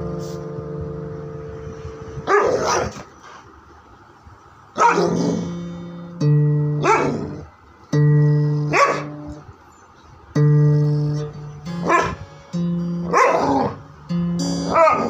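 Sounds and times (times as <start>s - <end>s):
held piano notes: 0.0s - 2.4s, 5.1s - 9.6s, 10.3s - 15.0s
dog barking: 2.2s - 3.1s, 4.8s - 5.5s, 6.8s - 7.4s, 8.6s - 9.2s, 11.8s - 12.2s, 13.0s - 13.8s, 14.7s - 15.0s.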